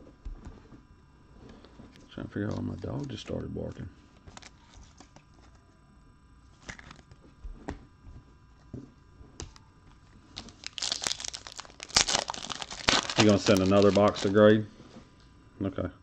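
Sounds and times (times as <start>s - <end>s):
foil wrapper crinkling and tearing: 4.2s - 5.5s, 10.3s - 14.5s.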